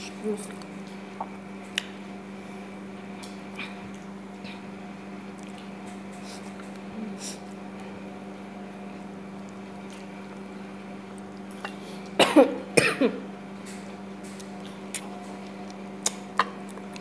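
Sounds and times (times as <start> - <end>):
steady low hum: 0.0 - 17.0
loud cough: 12.2 - 13.2.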